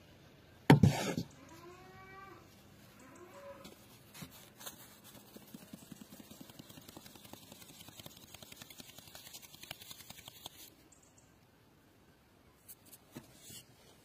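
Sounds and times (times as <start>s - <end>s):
flour sifting taps and rustles: 3.7s - 10.7s.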